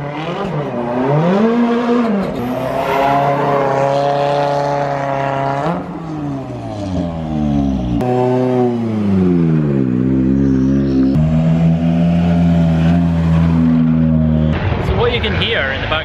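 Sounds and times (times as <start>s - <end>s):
rally car engine revving: 0.0s - 15.2s.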